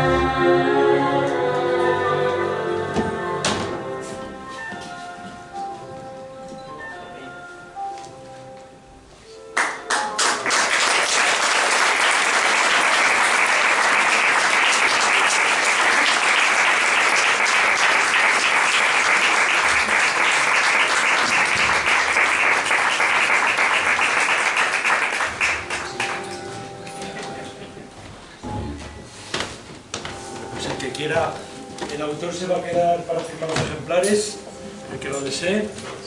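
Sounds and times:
audience applauding: 0:09.6 - 0:26.4.

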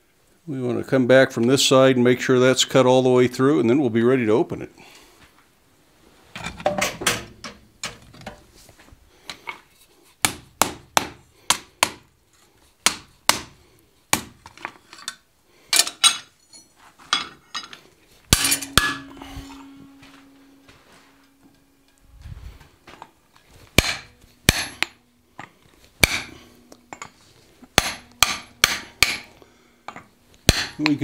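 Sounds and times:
hammer striking anvil and steel: 0:18.3 - 0:22.0, 0:23.7 - 0:31.0
metal ringing tone: 0:18.3 - 0:25.6, 0:26.2 - 0:30.9.

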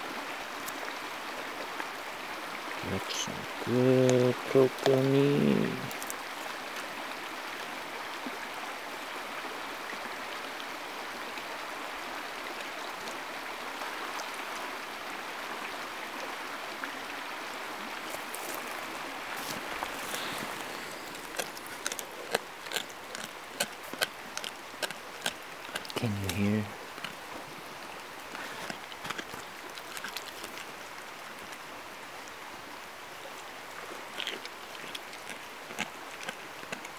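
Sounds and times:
creek water rushing: 0:00.0 - 0:36.9
dog crunching bones: 0:19.4 - 0:27.3, 0:28.3 - 0:30.8, 0:34.2 - 0:36.9.

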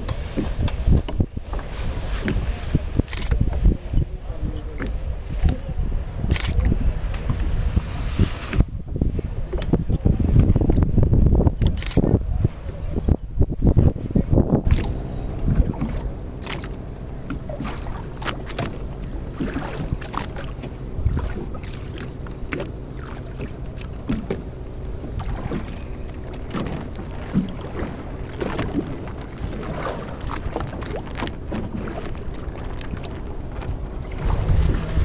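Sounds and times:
motorboat engine running: 0:00.0 - 0:35.0
water slapping against hull: 0:00.0 - 0:35.0.

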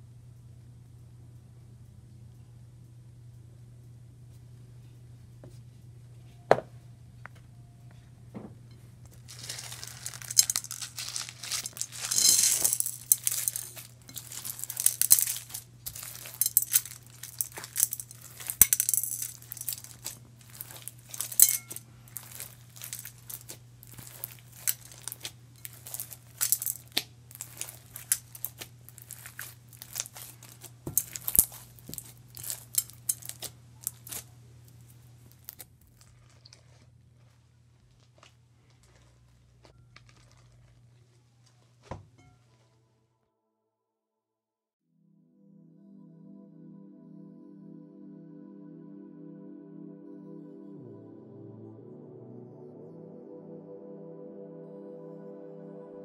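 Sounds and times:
faint low hum: 0:00.0 - 0:43.1
slime crackling and popping: 0:09.1 - 0:34.4, 0:35.1 - 0:41.8.

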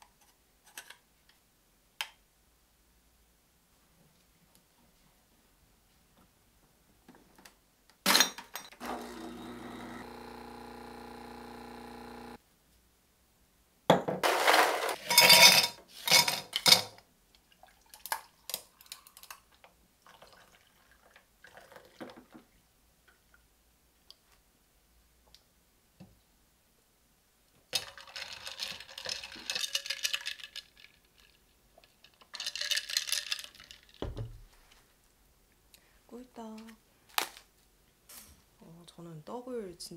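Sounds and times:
steady hum: 0:09.0 - 0:12.4
dishes and cutlery clattering: 0:14.1 - 0:17.0.

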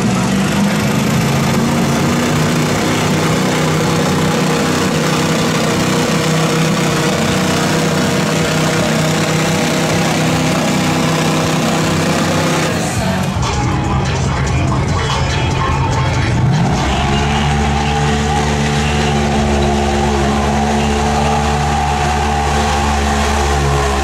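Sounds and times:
off-road vehicle engine running: 0:00.0 - 0:24.0.

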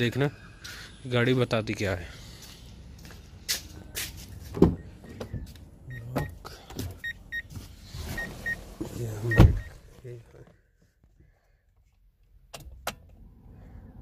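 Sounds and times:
car door clicks and thumps: 0:04.5 - 0:05.5, 0:09.3 - 0:09.8
car door shutting: 0:04.5 - 0:05.5, 0:08.0 - 0:09.9
car warning chime beeping: 0:04.7 - 0:07.5, 0:08.1 - 0:09.9.

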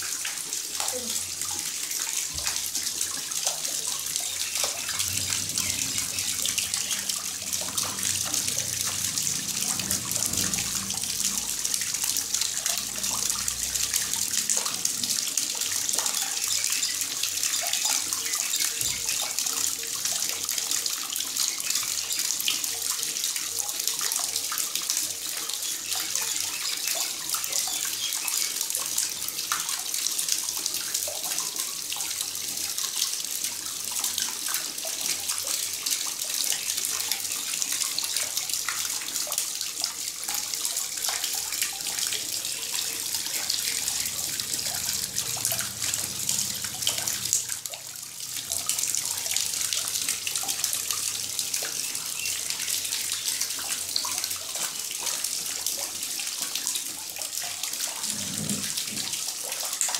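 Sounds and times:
water splashing into basin: 0:00.0 - 0:22.9, 0:34.4 - 0:55.9.

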